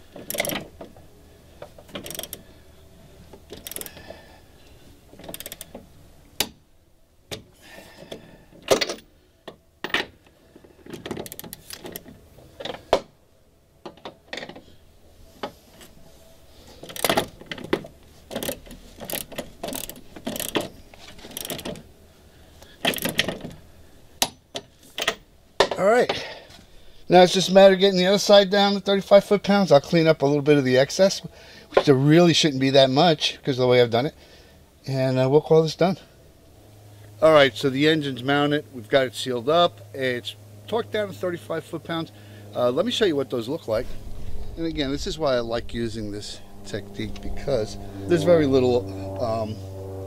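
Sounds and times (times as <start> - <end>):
torque wrench ratchet clicking: 0.2 - 0.6, 2.0 - 2.5, 3.5 - 4.0, 5.3 - 5.7, 11.2 - 12.0, 16.9 - 17.2, 18.3 - 20.6, 21.3 - 21.8.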